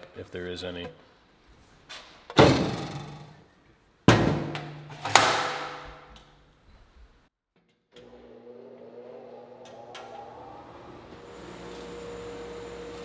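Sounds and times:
metal door banging shut: 0:02.3 - 0:03.3.

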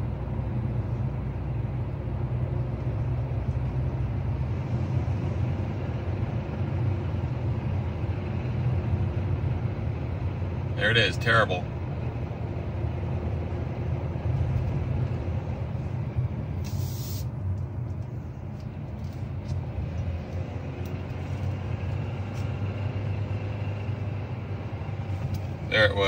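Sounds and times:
car engine droning under load: 0:00.0 - 0:26.0
brief hiss: 0:16.6 - 0:17.3.

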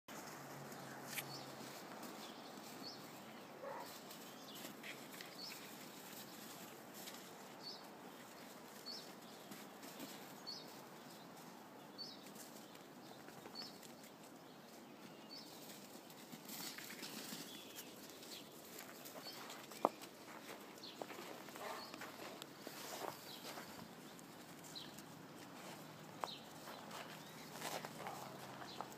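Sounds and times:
puppies scuffling through snow: 0:00.1 - 0:28.9
crunching snow: 0:15.6 - 0:28.9.

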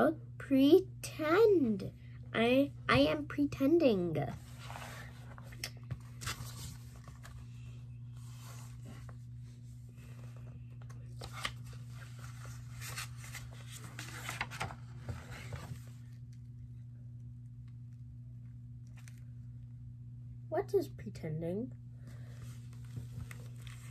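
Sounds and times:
steady low hum: 0:00.0 - 0:23.9
book pages rustling and turning: 0:04.3 - 0:16.3, 0:22.4 - 0:23.9.

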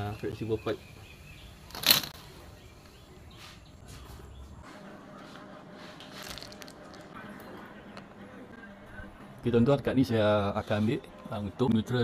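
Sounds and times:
loud plastic rustle: 0:06.0 - 0:07.1.

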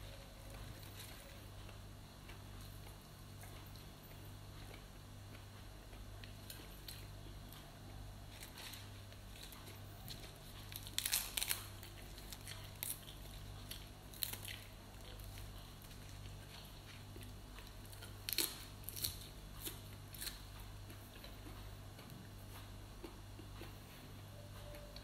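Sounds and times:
faint low hum: 0:00.0 - 0:25.0
leafy greens being torn: 0:08.3 - 0:20.6
crunching in the mouth: 0:08.3 - 0:23.8.

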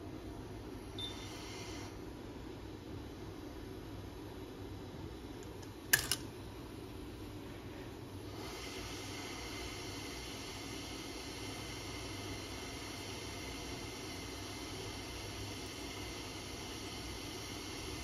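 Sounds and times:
hot air station hissing: 0:08.3 - 0:18.0.

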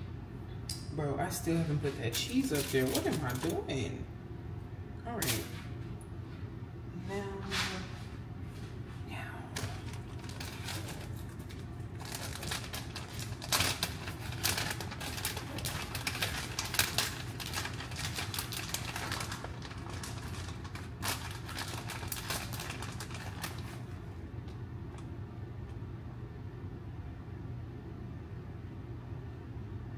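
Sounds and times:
low steady hum: 0:00.0 - 0:29.9
burgers crackling in a pan: 0:02.1 - 0:03.7, 0:09.6 - 0:24.1.

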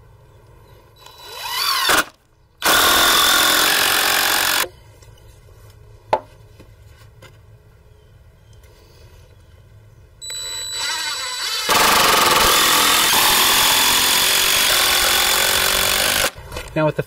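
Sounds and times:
power driver motor whine: 0:10.2 - 0:16.4.

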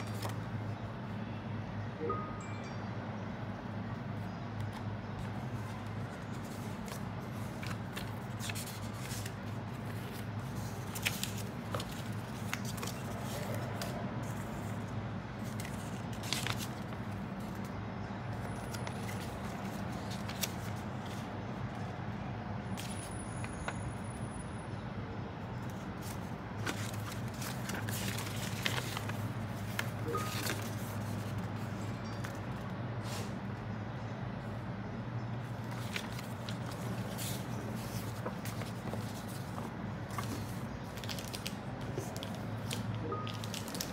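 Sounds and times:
paper rustling and crinkling: 0:00.0 - 0:00.8, 0:04.6 - 0:21.8, 0:25.6 - 0:33.4, 0:35.4 - 0:43.9.

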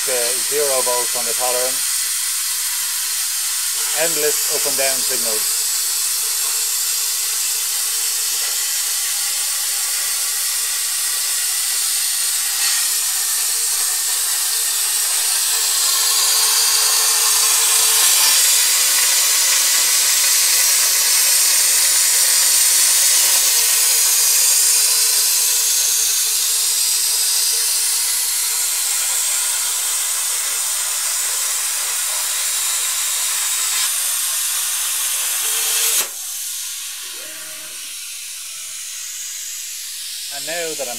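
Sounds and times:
plasma torch hissing: 0:00.0 - 0:40.9.

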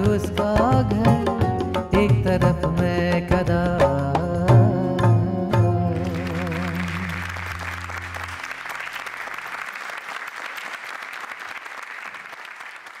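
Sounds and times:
held low musical notes: 0:04.4 - 0:08.9
audience applauding: 0:06.0 - 0:13.0.

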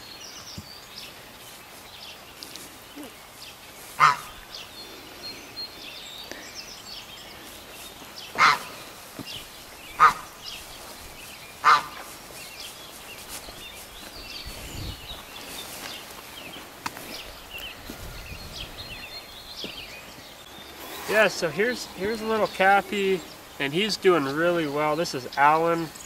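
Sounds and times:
geese honking: 0:04.0 - 0:04.4, 0:08.3 - 0:08.9, 0:10.0 - 0:10.5, 0:11.6 - 0:12.1, 0:20.8 - 0:25.7.

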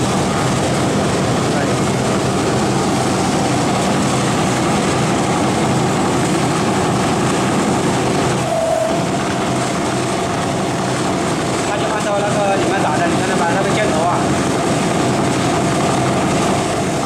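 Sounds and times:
low hum: 0:00.0 - 0:11.7
leather punching machine running: 0:00.0 - 0:17.0
brief higher tone: 0:08.4 - 0:09.1.

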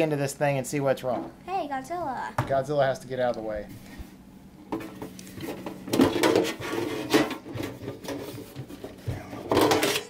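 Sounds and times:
metal cover scraping and clattering: 0:04.7 - 0:10.0.

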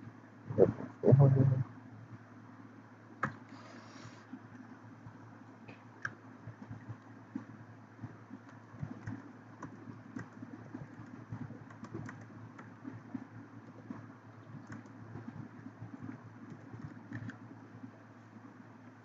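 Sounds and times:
steady low hum: 0:00.0 - 0:19.0
keyboard typing clicks: 0:08.4 - 0:13.0, 0:14.6 - 0:15.4, 0:16.0 - 0:17.4.

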